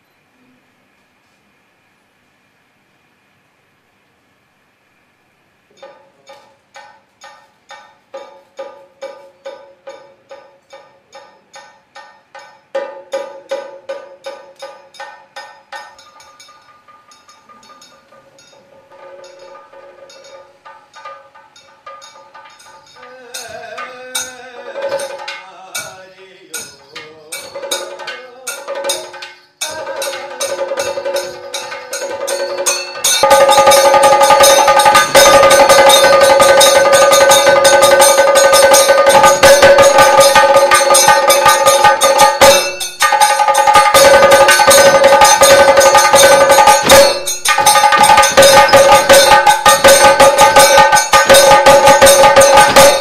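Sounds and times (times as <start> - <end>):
ringing metal cymbals: 5.7 - 53.0
drums: 12.5 - 53.0.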